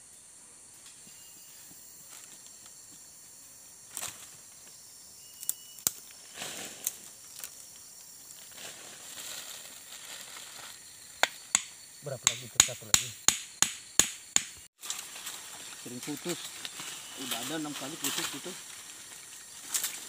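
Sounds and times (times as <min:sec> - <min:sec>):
high insect drone: 0:00.0 - 0:20.0
hands scraping soil and leaves: 0:05.4 - 0:11.1, 0:14.8 - 0:20.0.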